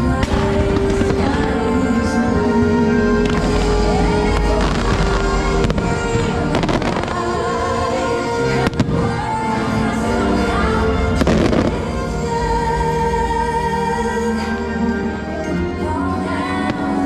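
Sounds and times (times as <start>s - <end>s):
fireworks bangs: 0.0s - 9.4s
loud show music: 0.0s - 17.0s.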